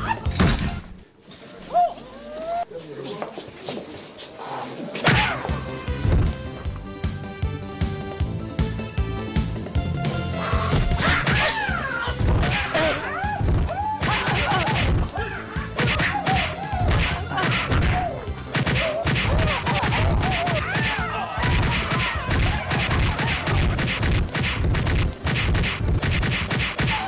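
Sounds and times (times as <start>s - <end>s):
background music: 0.0s - 1.2s, 5.0s - 27.0s
punches and kicks landing: 12.2s - 15.1s, 15.8s - 27.0s.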